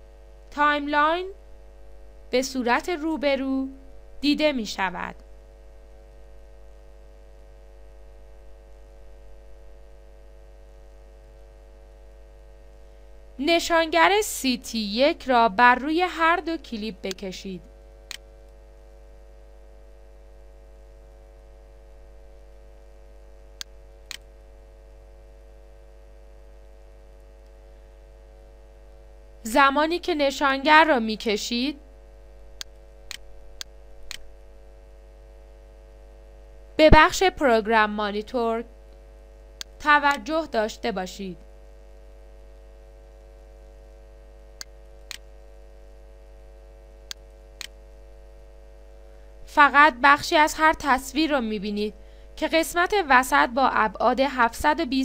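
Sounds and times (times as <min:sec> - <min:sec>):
steady electrical hum: 0:00.0 - 0:55.0
computer mouse clicks: 0:18.0 - 0:18.6, 0:23.6 - 0:24.3, 0:32.6 - 0:34.3, 0:39.6 - 0:40.2, 0:44.6 - 0:45.3, 0:47.1 - 0:47.8
computer mouse clicking: 0:23.6 - 0:24.3, 0:47.1 - 0:47.8.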